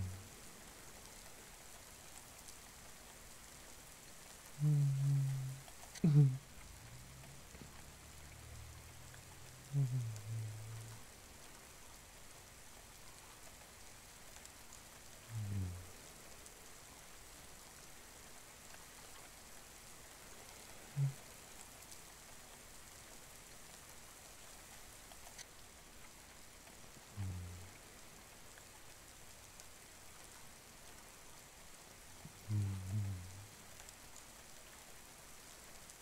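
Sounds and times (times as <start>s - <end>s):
man humming softly: 0.0s - 0.4s, 4.6s - 7.7s, 9.4s - 11.1s, 15.3s - 16.0s, 20.8s - 21.3s, 27.0s - 27.8s, 32.3s - 33.6s
steady rain falling: 0.0s - 36.0s.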